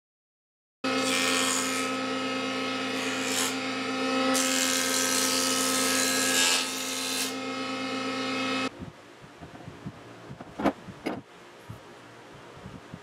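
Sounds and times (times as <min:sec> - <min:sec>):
jointer motor hum: 0:00.9 - 0:08.7.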